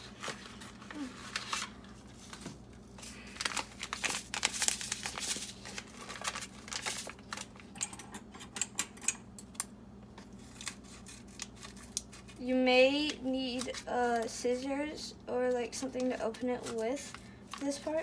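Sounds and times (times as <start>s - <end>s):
paper sachet crinkling: 0.0s - 7.8s, 10.4s - 14.4s.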